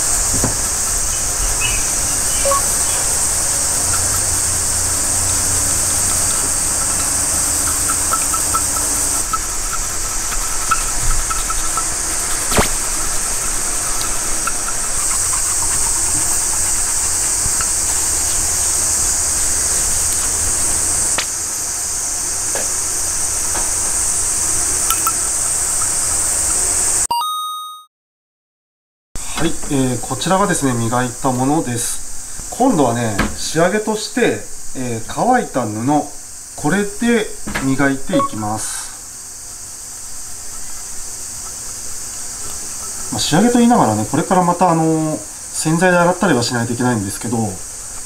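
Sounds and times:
cloth polishing metal cup: 0.0s - 21.1s
steady high hiss: 0.0s - 27.1s, 29.2s - 48.0s.

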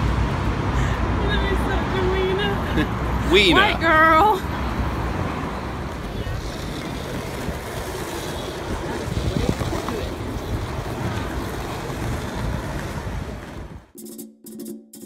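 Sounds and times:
outdoor street noise: 0.0s - 15.0s
wind buffeting microphone: 4.7s - 13.9s.

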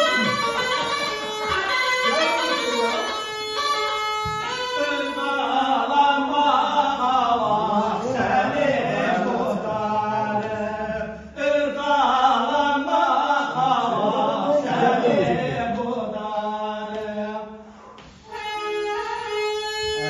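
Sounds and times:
men chanting: 0.0s - 3.2s, 4.4s - 18.0s.

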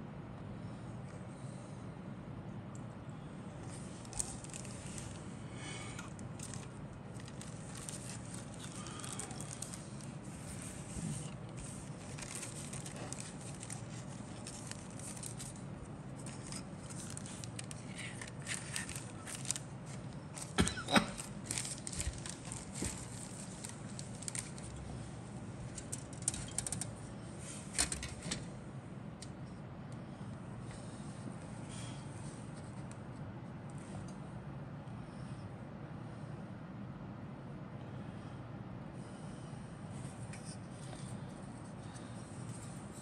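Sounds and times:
steady low hum: 0.0s - 43.0s
plastic packaging crinkling: 3.9s - 5.2s, 6.2s - 24.9s, 25.7s - 27.0s
plastic parts clicking and rattling: 25.8s - 26.9s.

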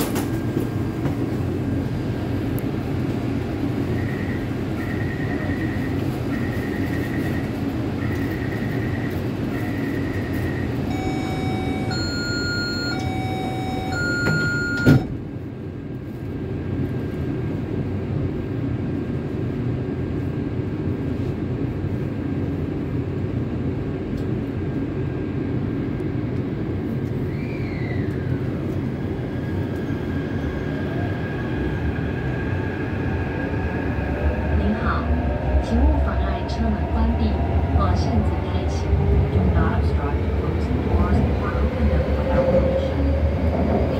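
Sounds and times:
train doors shutting with a thud: 0.0s - 1.4s, 11.0s - 15.4s
train traction inverter whine: 0.0s - 43.9s
door-warning beeps: 3.9s - 15.2s.

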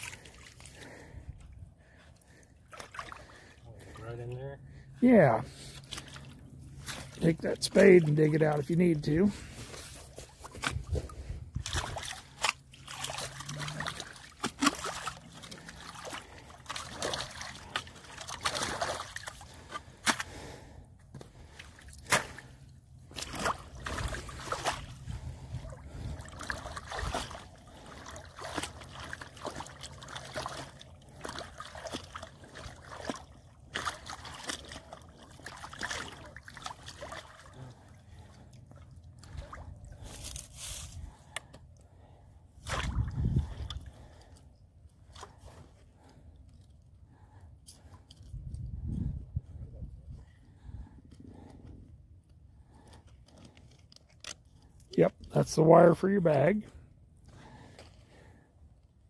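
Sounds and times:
water sloshing and trickling: 0.0s - 59.0s
spade digging wet mud: 5.5s - 20.4s, 21.2s - 38.3s, 42.6s - 43.8s.

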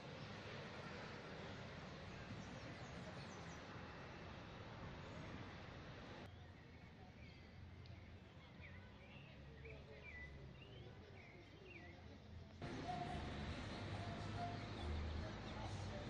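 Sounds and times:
birds chirping: 7.2s - 16.0s
low outdoor rumble: 12.6s - 16.0s.

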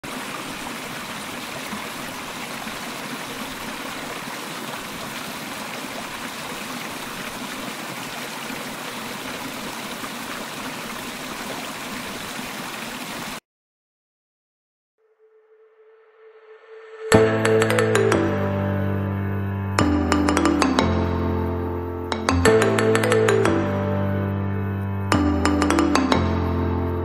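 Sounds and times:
waterfall rushing: 0.0s - 13.4s.

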